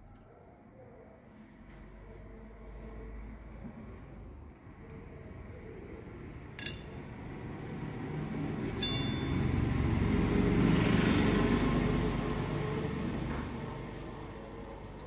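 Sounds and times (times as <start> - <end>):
metal parts clinking: 6.6 - 7.0, 8.5 - 9.3
passing road vehicle rumble: 7.0 - 15.0.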